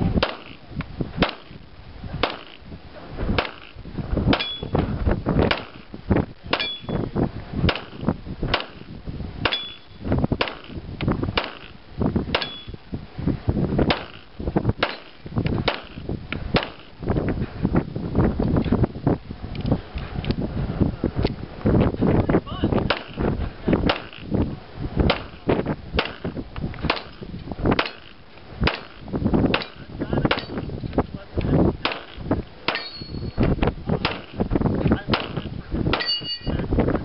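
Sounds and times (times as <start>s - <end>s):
bullet pinging steel target: 1.2s - 1.6s, 2.2s - 2.6s, 3.4s - 4.8s, 5.4s - 5.9s, 6.5s - 7.1s, 7.7s - 10.8s, 11.4s - 11.7s, 12.3s - 12.8s, 13.9s - 14.2s, 14.8s - 16.0s, 16.6s - 16.9s, 22.9s - 23.2s, 23.8s - 24.2s, 25.1s - 30.7s, 31.8s - 34.4s, 35.1s - 36.6s
handgun shots: 1.2s - 1.6s, 2.2s - 2.6s, 3.4s - 3.7s, 5.5s - 5.8s, 7.7s - 8.8s, 10.4s - 10.8s, 11.4s - 11.7s, 12.4s - 12.7s, 13.9s - 14.2s, 14.8s - 15.1s, 15.7s - 16.0s, 16.6s - 16.9s, 22.9s - 23.2s, 23.9s - 24.2s, 26.0s - 26.3s, 28.7s - 30.6s, 31.8s - 33.0s, 34.0s - 34.3s, 35.1s - 35.4s.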